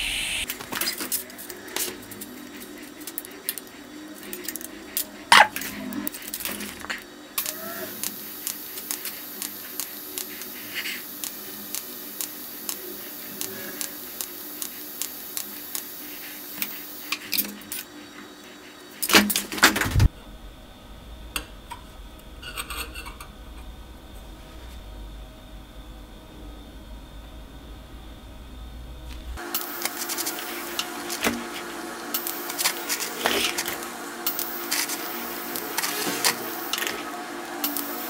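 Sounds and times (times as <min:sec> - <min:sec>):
welding hiss: 0:00.0 - 0:20.2, 0:26.4 - 0:38.0
sharp welding ticks: 0:07.4 - 0:17.9, 0:29.4 - 0:30.9, 0:32.1 - 0:35.9
low hum: 0:19.8 - 0:32.4.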